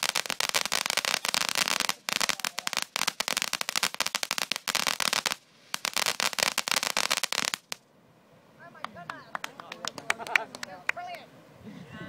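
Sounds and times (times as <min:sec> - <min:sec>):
firework crackling: 0:00.0 - 0:07.8.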